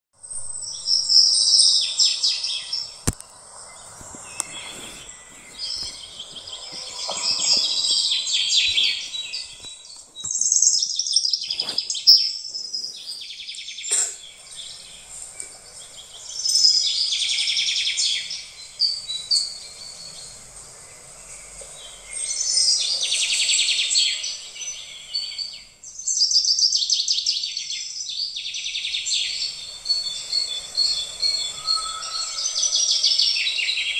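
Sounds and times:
high-pitched hiss: 0:00.2 - 0:26.3, 0:29.1 - 0:33.9
bird trilling: 0:00.8 - 0:15.1, 0:29.1 - 0:33.9.

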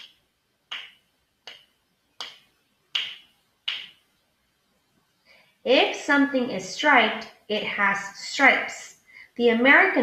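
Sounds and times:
finger snaps: 0:00.0 - 0:04.0.

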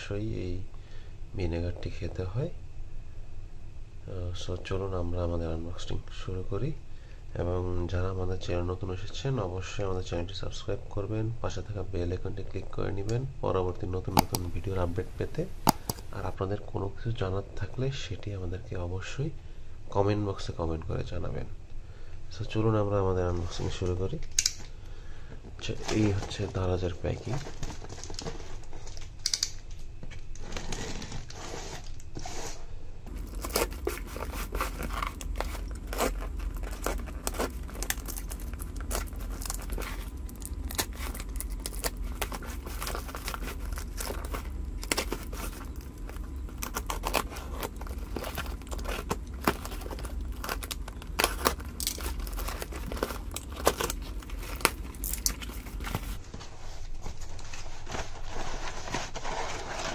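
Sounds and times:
paper packing crinkling: 0:14.1 - 0:16.3, 0:25.7 - 0:29.3, 0:33.1 - 0:59.9
plastic wrap crackling: 0:14.1 - 0:16.3, 0:27.1 - 0:29.3, 0:33.1 - 0:56.4
box cutter slitting parcel: 0:33.1 - 0:56.2.

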